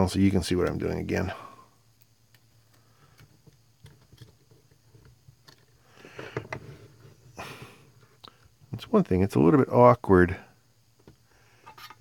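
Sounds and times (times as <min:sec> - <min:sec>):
clicks and handling noise: 0:02.0 - 0:06.6.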